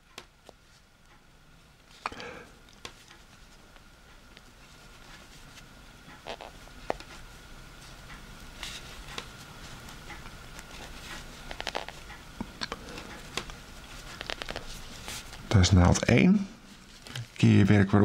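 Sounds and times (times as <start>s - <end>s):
knitting needles clicking: 14.1s - 14.7s.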